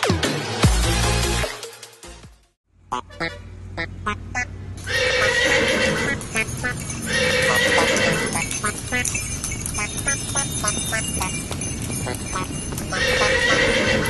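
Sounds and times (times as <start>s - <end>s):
louder sound over hoofbeats: 2.9s - 14.0s
hooves clip-clopping on brick: 4.8s - 14.0s.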